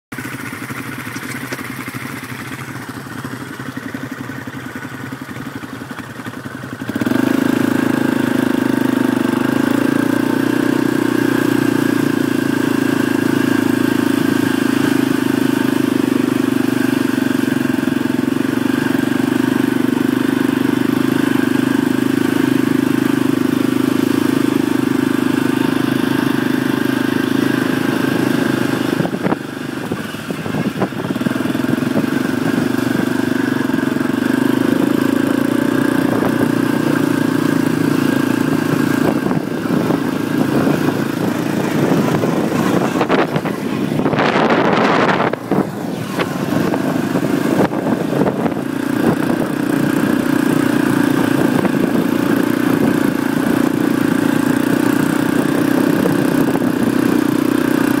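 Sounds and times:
quad engine running: 0:00.1 - 0:58.0.

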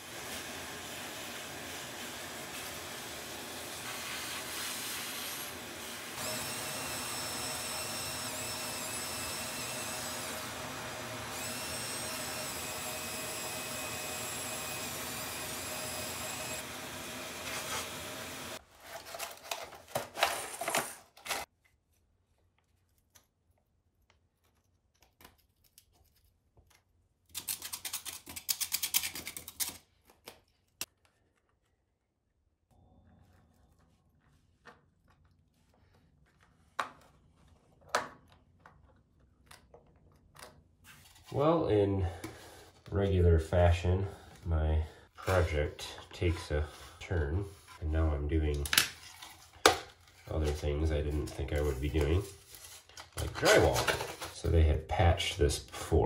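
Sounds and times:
vacuum cleaner running: 0:00.0 - 0:18.6.

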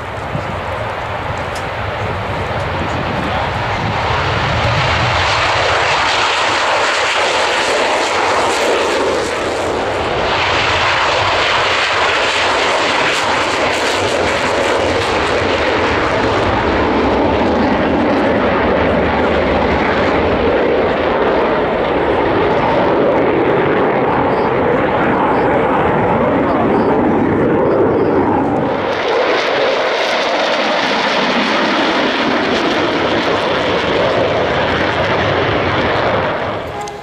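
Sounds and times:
jet engine roaring: 0:00.0 - 0:37.0.

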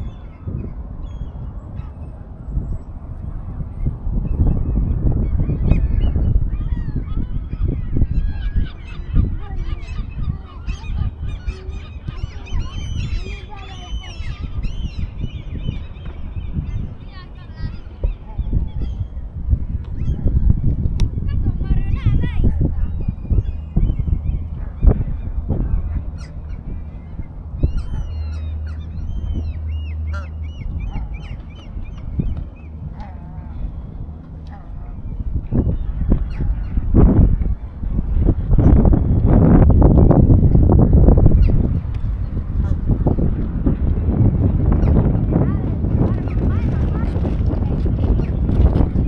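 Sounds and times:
low rumble: 0:00.0 - 0:49.0
waterfowl flock calling: 0:06.6 - 0:15.1, 0:26.2 - 0:31.9
waterfowl calling: 0:27.7 - 0:31.9.

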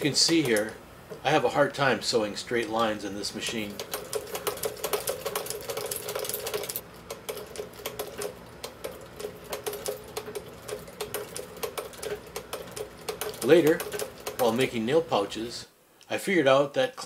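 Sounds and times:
sewing machine clicking: 0:00.0 - 0:01.2, 0:02.6 - 0:15.0.

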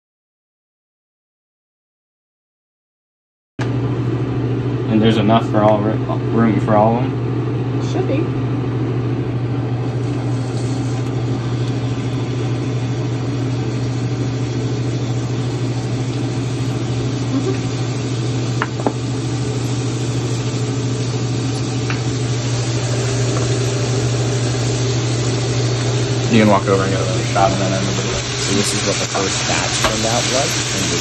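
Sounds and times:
steady low hum: 0:03.6 - 0:31.0
meat patties sizzling in pan: 0:09.8 - 0:31.0.

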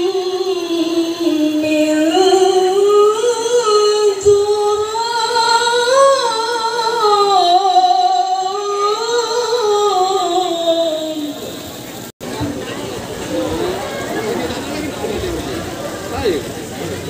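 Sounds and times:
woman reciting melodically through speakers: 0:00.0 - 0:11.7.

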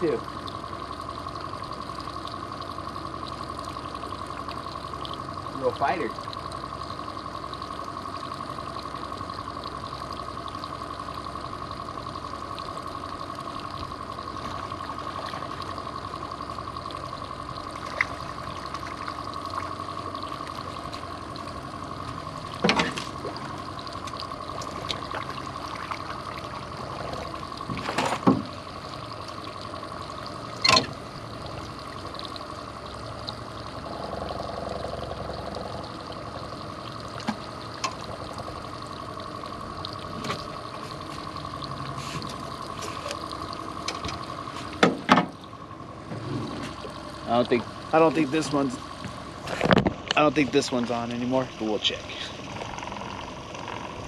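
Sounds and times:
outboard motor running: 0:00.0 - 0:54.0
water washing around boat: 0:00.0 - 0:54.0
sharp knocks on boat: 0:27.7 - 0:28.5, 0:44.8 - 0:45.4.

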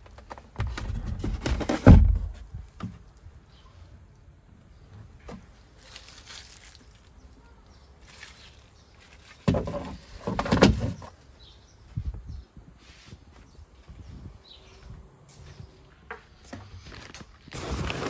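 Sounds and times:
plastic wrap rubbing and crinkling: 0:05.8 - 0:07.2, 0:08.0 - 0:10.3, 0:16.8 - 0:18.0.

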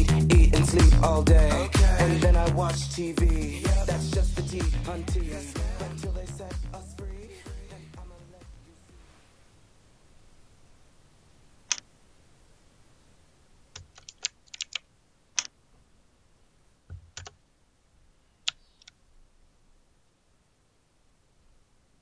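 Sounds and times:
keyboard typing clicks: 0:13.8 - 0:14.8, 0:16.9 - 0:17.4.

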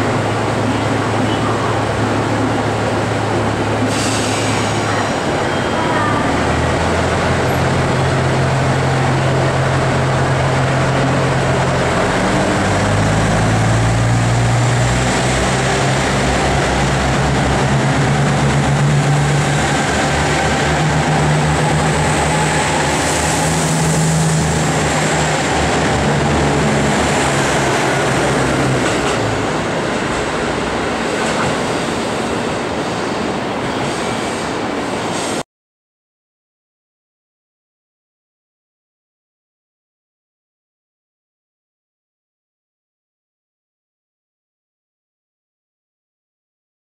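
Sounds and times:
diesel train engines droning: 0:00.0 - 0:35.4.

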